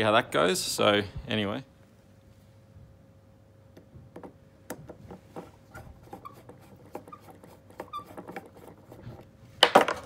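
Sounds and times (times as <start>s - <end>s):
screwdriver squeaks: 5.7s - 9.0s.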